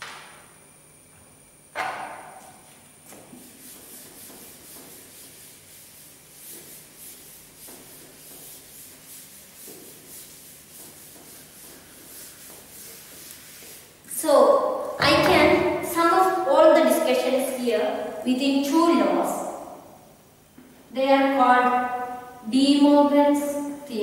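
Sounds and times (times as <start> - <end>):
eraser scrubbing a blackboard: 3.0 - 14.0.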